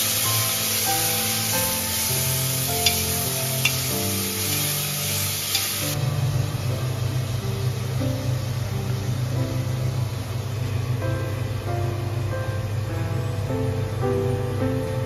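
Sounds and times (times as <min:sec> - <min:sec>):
tomatoes sizzling in pot: 0:00.0 - 0:12.2.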